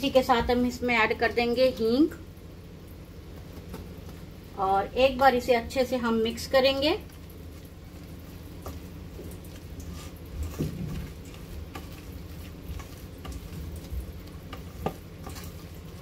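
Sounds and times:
wet squishing of paste mixed by hand: 6.8 - 16.0.

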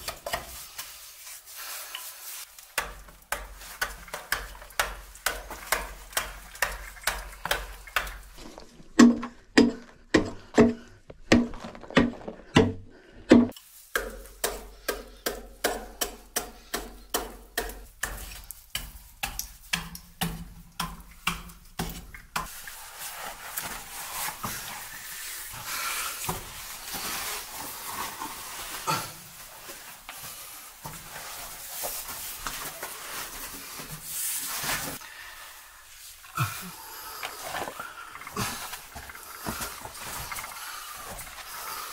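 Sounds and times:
adze chopping stone: 2.8 - 8.2, 11.3 - 22.5
gritty scraping and rustling: 22.4 - 35.0, 37.2 - 41.9.

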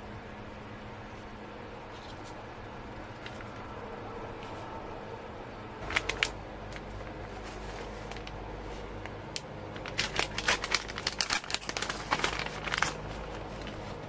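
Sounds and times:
plastic bag crinkling: 5.8 - 14.0.

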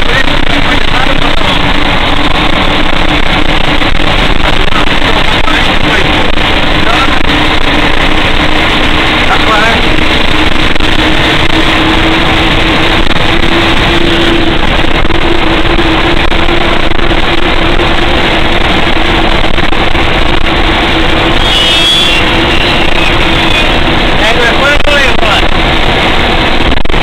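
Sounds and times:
fire truck engine drone: 0.0 - 27.0
brief high squeal: 21.4 - 23.8.

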